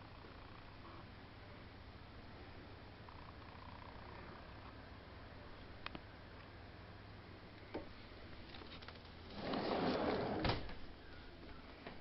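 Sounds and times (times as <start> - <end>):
door sliding shut: 9.3 - 10.8.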